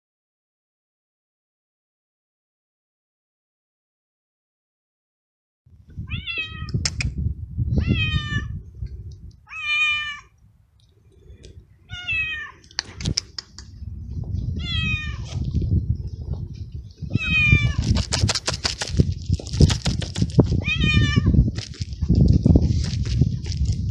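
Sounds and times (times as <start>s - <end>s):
cat meowing loudly: 6.0s - 6.8s, 7.8s - 8.6s, 9.5s - 10.3s, 11.9s - 12.7s, 14.6s - 15.4s, 17.1s - 17.8s, 20.6s - 21.4s.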